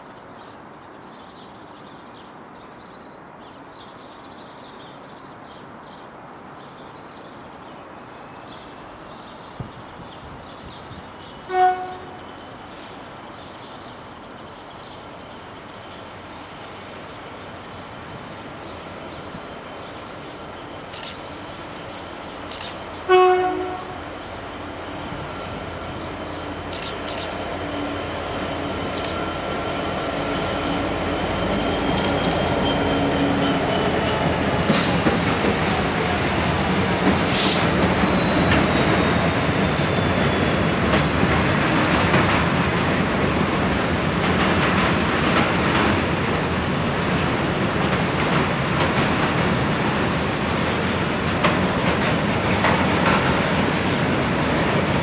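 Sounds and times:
diesel locomotive passing: 11.0s - 55.0s
train horn blast: 11.4s - 12.2s, 23.1s - 24.0s
clacks over rail joints: 43.6s - 46.5s, 47.8s - 55.0s.

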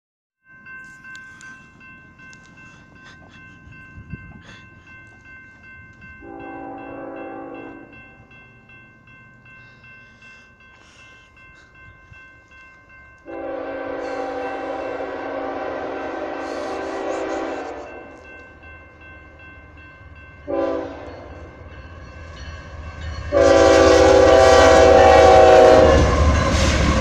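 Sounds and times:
railroad crossing bell ringing: 0.4s - 27.0s
locomotive horn blast: 6.2s - 7.9s, 13.3s - 18.2s, 20.4s - 21.4s, 23.3s - 26.3s.

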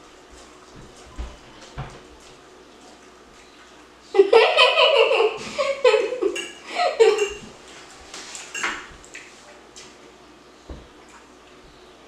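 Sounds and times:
girls laughing: 4.1s - 7.4s.

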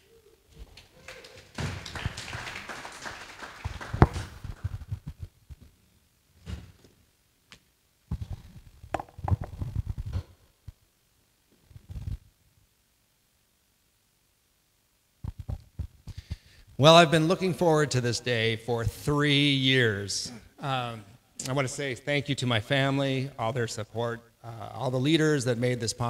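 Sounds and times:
microphone handling rubbing: 4.0s - 5.8s, 8.1s - 10.8s, 11.6s - 12.3s, 15.2s - 16.8s
taps and knocks on microphone: 8.1s - 10.2s, 15.2s - 16.4s.

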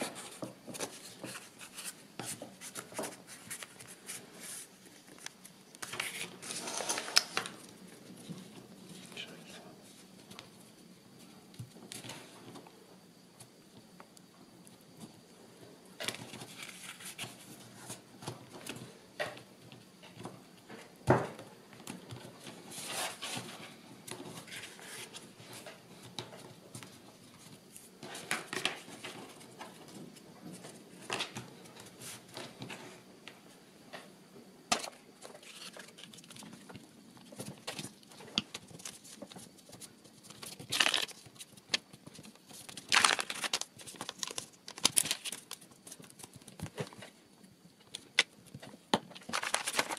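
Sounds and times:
paper and cardboard rustling: 0.0s - 10.1s, 16.0s - 18.9s, 22.1s - 33.0s, 34.7s - 47.2s, 48.6s - 49.9s.

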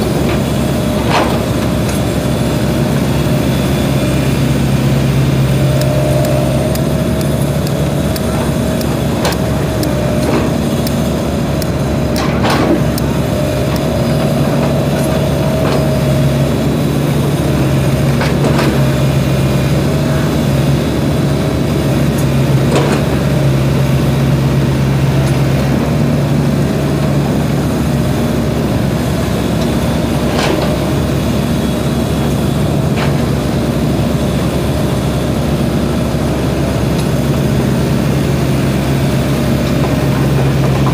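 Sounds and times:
excavator diesel engine running: 0.0s - 40.9s.

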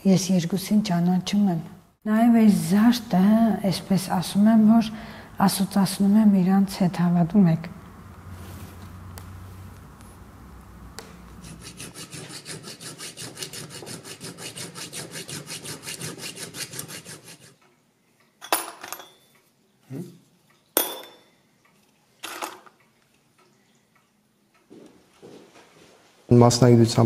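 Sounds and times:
file rasping on brass: 11.4s - 17.6s.

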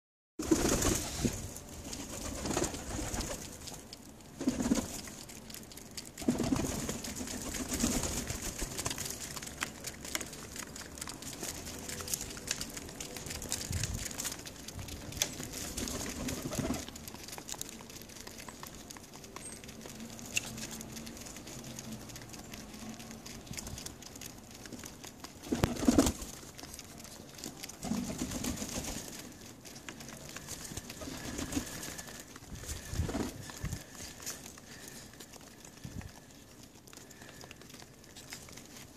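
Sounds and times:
pigeons cooing: 24.8s - 38.3s.

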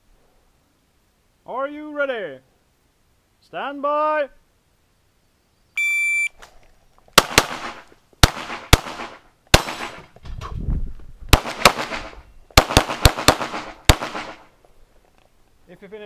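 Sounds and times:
shot timer start beep: 5.8s - 6.4s
pistol gunshots: 7.2s - 10.1s, 11.3s - 14.5s.

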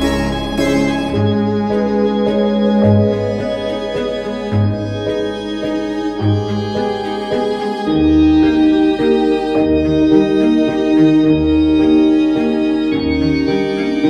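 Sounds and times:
held chords: 0.0s - 6.0s
low bass line: 0.0s - 7.2s.

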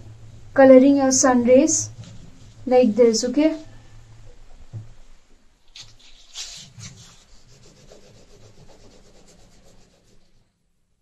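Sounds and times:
crayon scribbling on paper: 6.0s - 10.5s.

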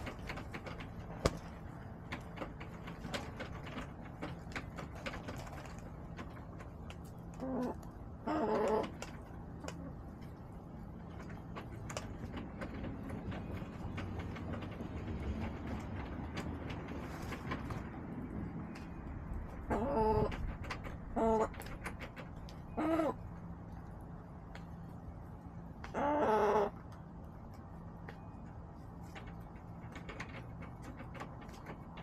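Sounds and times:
hen calling: 22.7s - 23.3s, 25.8s - 26.8s.

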